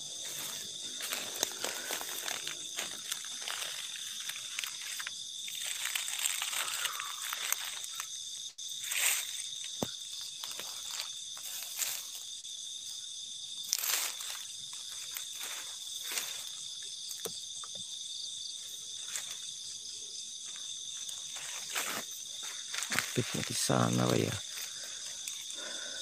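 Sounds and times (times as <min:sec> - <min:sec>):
rustling crunches: 0:00.0 - 0:12.4, 0:13.6 - 0:17.3, 0:18.6 - 0:19.8, 0:20.4 - 0:26.0
night insects chorus: 0:00.0 - 0:26.0.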